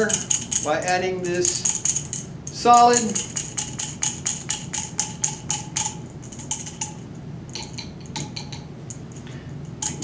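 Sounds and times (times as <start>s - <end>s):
tapping on glass cylinder: 2.8s - 8.7s.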